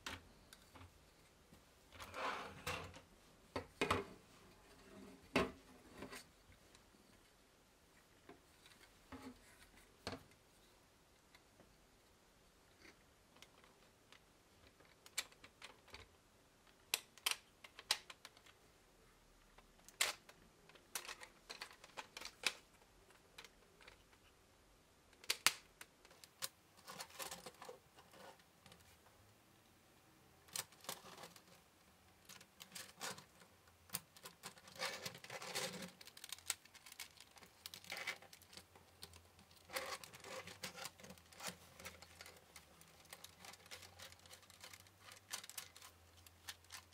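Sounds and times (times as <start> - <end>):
plastic parts clicking and snapping: 13.4 - 18.6, 19.6 - 24.3, 25.1 - 27.7, 32.2 - 46.9.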